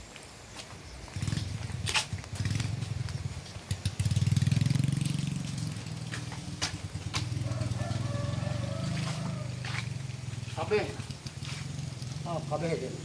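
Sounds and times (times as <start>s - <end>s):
small petrol engine running: 3.6s - 13.0s.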